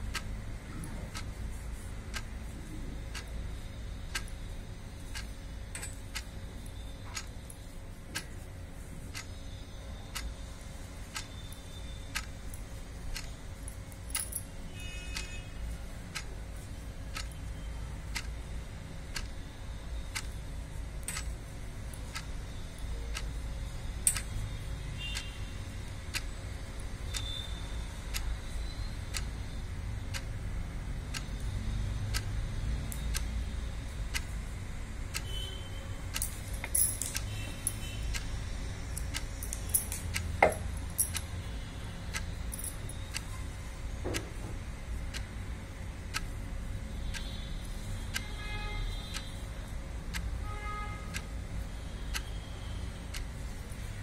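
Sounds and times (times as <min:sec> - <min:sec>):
steady ticking: 0:00.0 - 0:44.0, 0:44.8 - 0:53.9.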